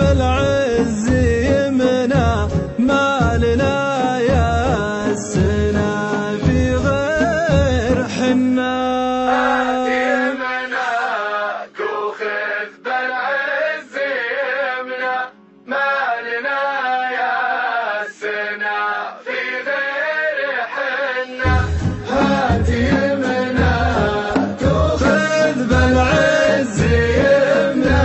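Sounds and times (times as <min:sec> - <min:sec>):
deep drums or bass: 0:00.0 - 0:08.2, 0:21.5 - 0:28.0
person singing in chanting style: 0:03.2 - 0:28.0.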